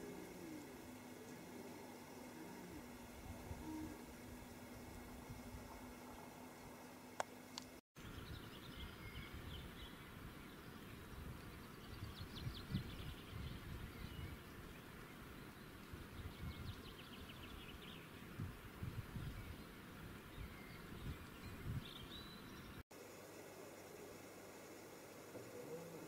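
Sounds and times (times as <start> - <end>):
wind on microphone: 2.8 - 6.0, 11.0 - 14.4, 16.0 - 19.6, 20.3 - 22.1.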